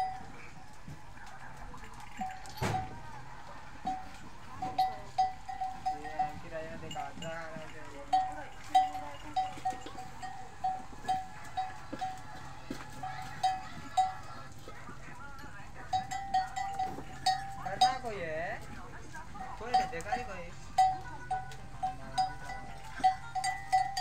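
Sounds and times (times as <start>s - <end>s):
small metal bell clinking: 3.8s - 14.5s, 15.4s - 18.2s, 19.6s - 24.0s.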